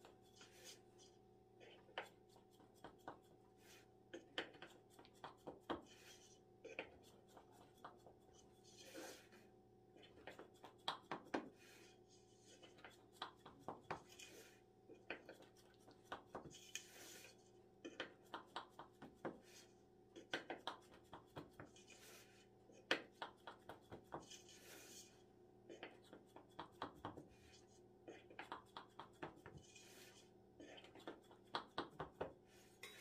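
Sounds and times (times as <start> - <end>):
knife swishing through dough: 0.0 - 1.2, 4.6 - 9.5, 15.4 - 17.6, 20.8 - 22.6, 23.5 - 25.2, 28.6 - 33.0.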